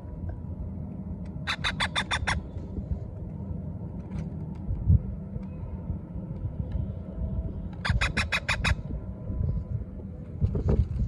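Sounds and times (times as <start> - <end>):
low steady rumble: 0.0 - 11.0
parakeet chicks squawking: 1.5 - 2.4, 7.8 - 8.8.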